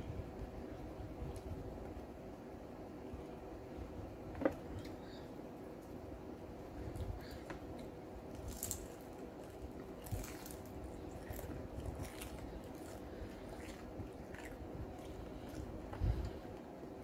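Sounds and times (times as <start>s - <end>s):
chewing with crisp crunches: 6.8s - 16.8s.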